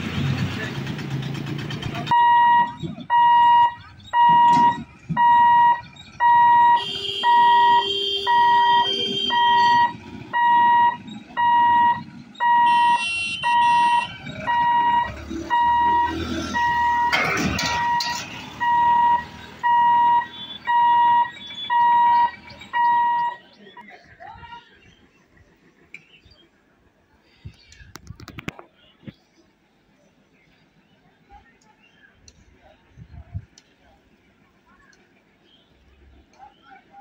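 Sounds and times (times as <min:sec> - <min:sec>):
level crossing hooter beeping: 0:02.1 - 0:23.9.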